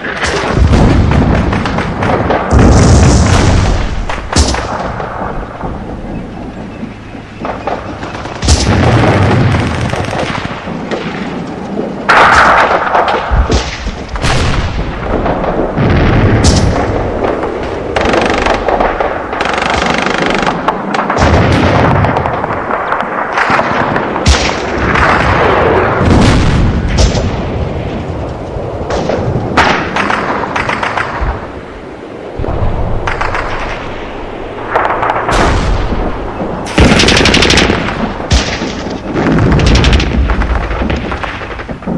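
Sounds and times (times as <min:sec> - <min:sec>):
booming explosions: 0:00.0 - 0:41.9
machine-gun bursts: 0:18.0 - 0:18.8, 0:19.4 - 0:20.7.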